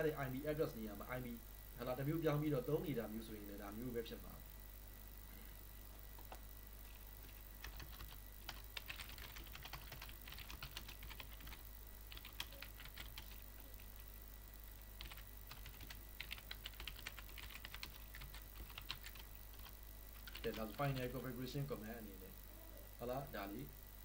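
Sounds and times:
faint low hum: 0.0s - 24.0s
computer keyboard typing: 7.6s - 13.4s, 15.0s - 21.1s.

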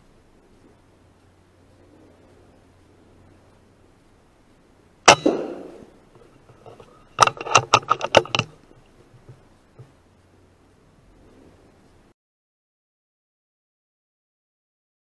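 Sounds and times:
air rifle shot cracking: 5.1s - 6.0s
rifle bolt clicking: 6.6s - 8.6s.

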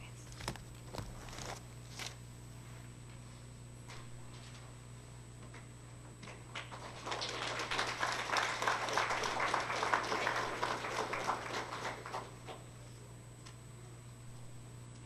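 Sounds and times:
audience applauding: 6.5s - 12.6s.

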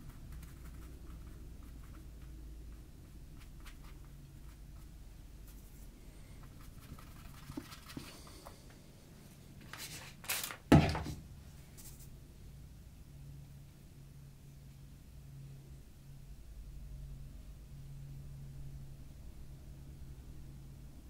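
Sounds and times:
paintbrush scratching on paper: 0.0s - 8.4s.

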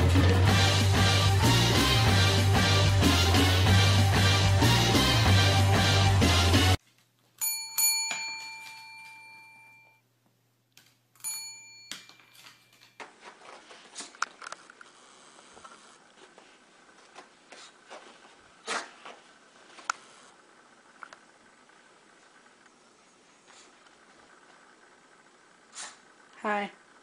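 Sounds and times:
service desk bell ringing: 7.4s - 10.0s, 11.2s - 12.9s
faint scuffling: 12.2s - 14.7s, 15.5s - 20.0s.

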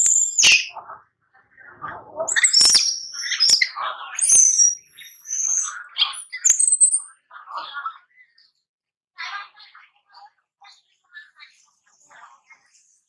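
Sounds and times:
baby monkey squealing and whimpering: 2.3s - 7.0s.

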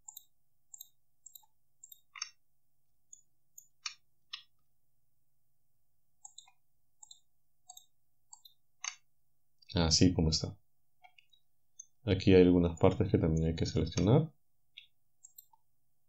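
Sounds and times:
computer mouse and key clicks: 0.0s - 2.4s, 3.1s - 4.5s, 6.2s - 9.1s, 13.4s - 14.1s, 14.7s - 15.7s.

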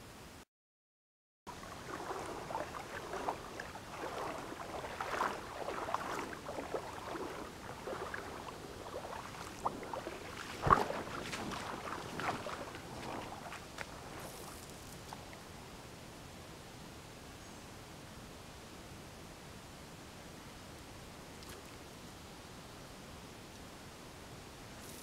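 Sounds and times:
water sloshing and splashing: 1.5s - 15.4s
loud splash or knock: 10.5s - 12.4s.

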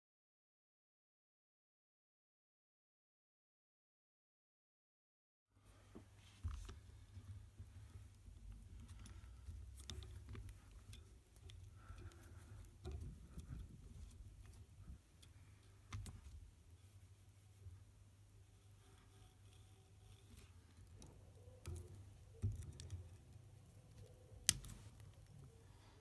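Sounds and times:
wire handling clicks and rustles: 5.8s - 26.0s.

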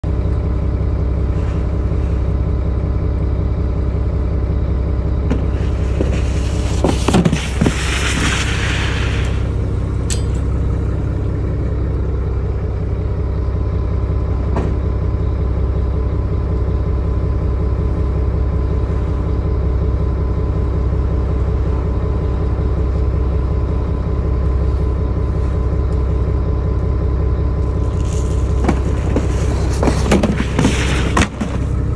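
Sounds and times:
engine idling: 0.0s - 31.9s
crate scraping down wooden chute: 5.4s - 9.5s, 27.9s - 31.8s.

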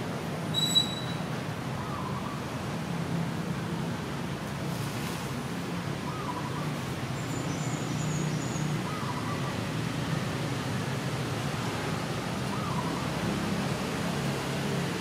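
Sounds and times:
low hum of distant traffic: 0.0s - 15.0s
faint short high chirps: 0.5s - 1.2s.

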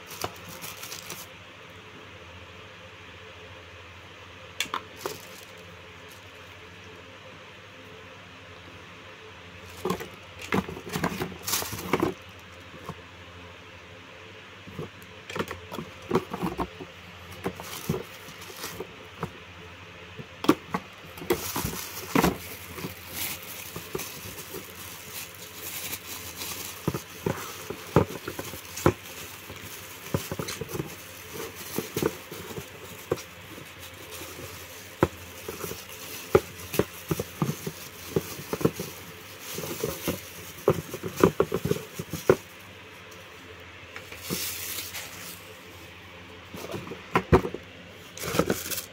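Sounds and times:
plastic and bubble wrap crinkling: 0.0s - 1.4s, 4.9s - 6.6s, 9.6s - 13.0s, 14.7s - 19.4s, 20.2s - 48.9s
knocks and scrapes on cardboard box: 9.8s - 12.2s, 14.7s - 19.4s, 20.4s - 42.6s, 46.5s - 47.6s, 48.2s - 48.9s.

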